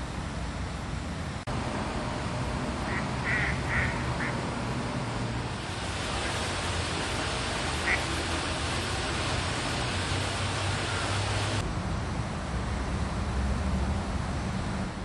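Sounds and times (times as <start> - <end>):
mallard quacking: 2.9 - 4.4, 7.8 - 8.1.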